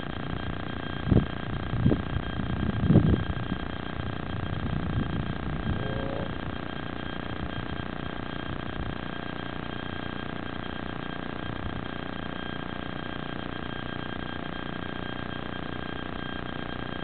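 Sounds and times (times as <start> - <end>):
thin high whine: 0.0 - 17.0
wind buffeting microphone: 1.0 - 6.6.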